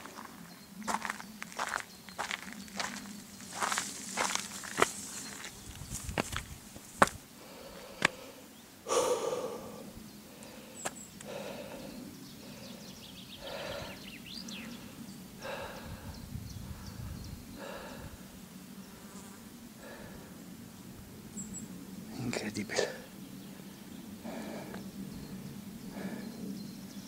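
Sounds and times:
person breathing heavily: 0:07.0 - 0:18.4, 0:19.8 - 0:20.4, 0:24.2 - 0:24.9, 0:25.8 - 0:26.5.

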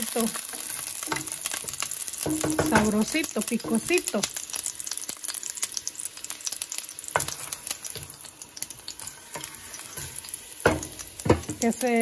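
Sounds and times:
oil sizzling with crackling pops: 0:00.0 - 0:12.0
wooden spoon stirring: 0:00.5 - 0:04.6, 0:07.1 - 0:11.7.

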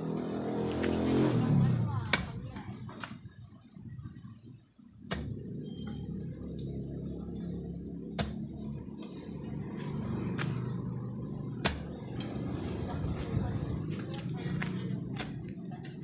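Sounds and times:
steady low rumble: 0:01.3 - 0:16.0
digging tool striking soil: 0:05.0 - 0:06.0, 0:08.1 - 0:09.2, 0:11.5 - 0:12.5.

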